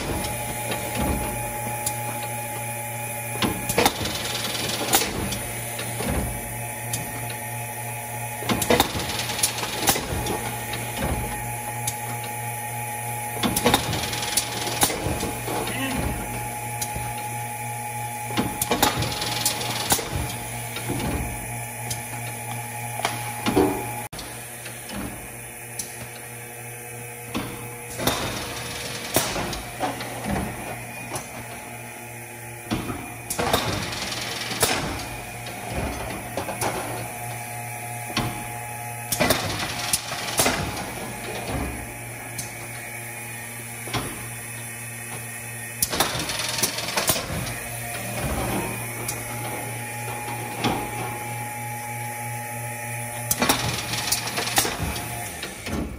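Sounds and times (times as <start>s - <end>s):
machine clacking and knocking: 0.0s - 2.3s, 3.4s - 7.4s, 8.4s - 11.5s, 13.4s - 17.3s, 18.3s - 22.4s, 27.3s - 31.6s, 32.7s - 37.2s, 39.1s - 42.8s, 45.8s - 51.2s, 53.3s - 55.9s
steady motor hum: 0.0s - 55.9s.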